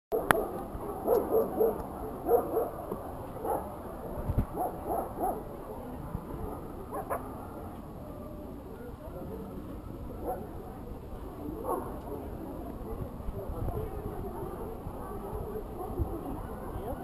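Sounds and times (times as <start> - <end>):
dogs barking: 0.1 - 2.8, 3.4 - 3.8, 4.5 - 5.4, 6.9 - 7.3.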